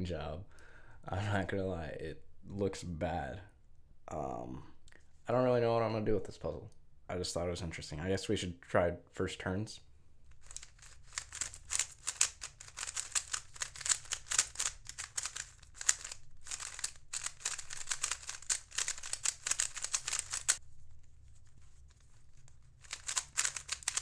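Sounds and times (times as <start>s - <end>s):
plastic puzzle cube clicking: 10.4s - 20.6s, 22.8s - 24.0s.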